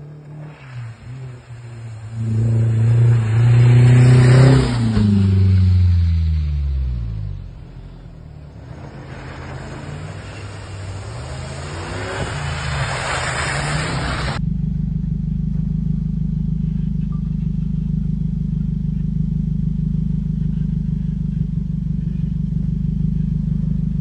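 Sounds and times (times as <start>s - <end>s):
low engine hum: 0.0s - 24.0s
vehicle engine revving: 0.0s - 24.0s
broad rushing noise: 8.2s - 14.4s.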